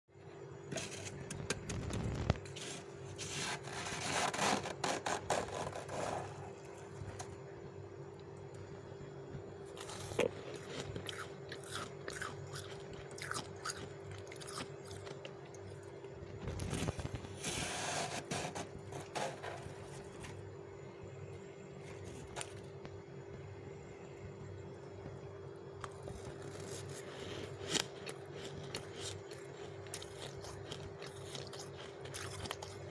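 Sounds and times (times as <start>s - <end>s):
steady low hum: 0.1s - 32.9s
spoon scraping frost crunching: 9.8s - 15.8s, 25.8s - 32.9s.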